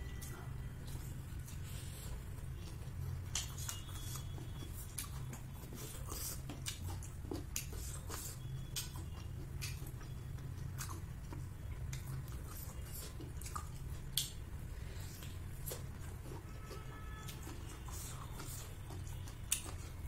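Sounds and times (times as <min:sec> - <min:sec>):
chewing and biting dumpling: 0:00.0 - 0:20.0
steady low hum: 0:00.0 - 0:20.0
mouth clicks and smacks: 0:06.0 - 0:11.1, 0:11.8 - 0:14.5.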